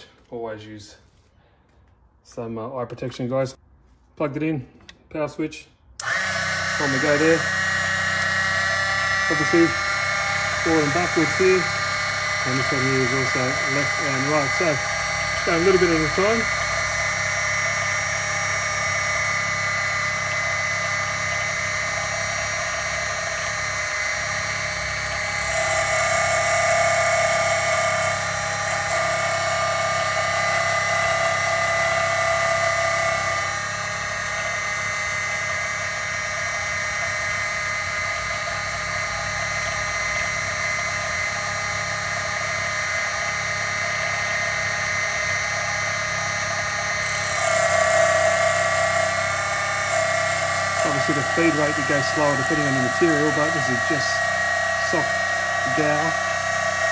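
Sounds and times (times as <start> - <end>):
lathe motor whining: 6.0 - 56.9.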